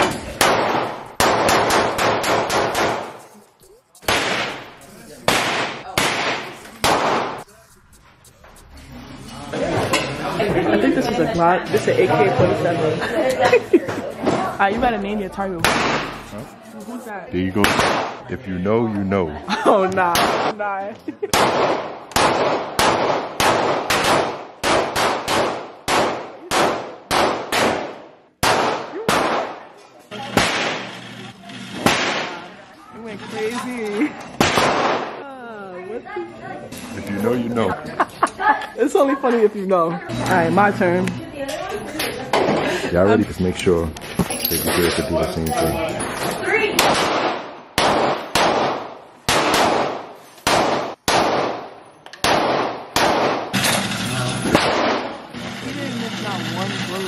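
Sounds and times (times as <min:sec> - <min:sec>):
handgun shots echoing indoors: 0:21.3 - 0:29.6, 0:34.4 - 0:35.2, 0:46.8 - 0:53.8, 0:54.5 - 0:55.2.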